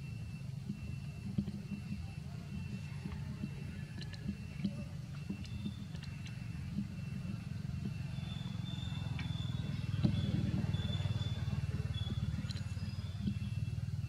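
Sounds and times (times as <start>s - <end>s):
faint high chirps: 0.0s - 14.0s
motor-like rumble: 0.0s - 14.0s
small ticks: 0.6s - 13.8s.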